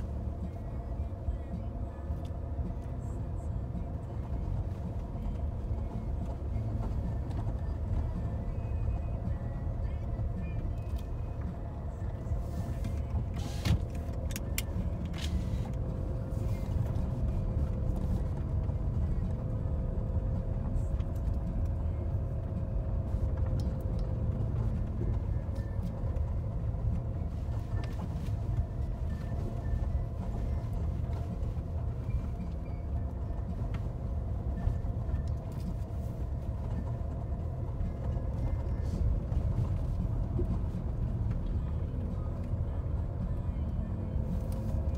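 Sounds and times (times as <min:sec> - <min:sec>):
engine and tyre rumble: 0:00.0 - 0:44.9.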